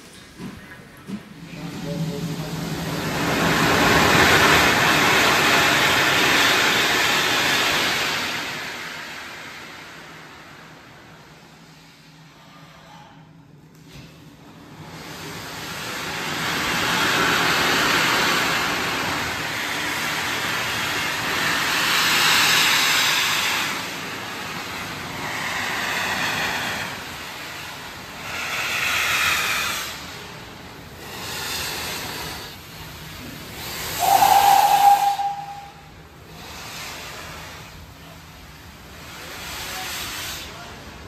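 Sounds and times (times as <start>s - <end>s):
steam locomotive hissing steam: 0.0s - 13.2s, 13.9s - 41.0s
steam whistle blast: 34.0s - 36.0s.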